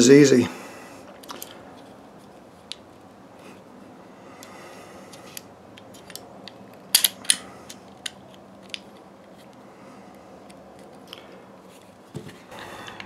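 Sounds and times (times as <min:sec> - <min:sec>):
metal-on-polymer clicks: 0:05.8 - 0:08.8.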